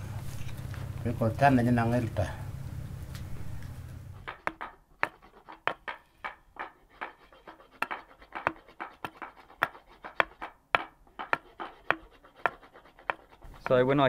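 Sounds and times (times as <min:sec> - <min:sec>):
hand tool scraping wood: 0:04.1 - 0:14.0.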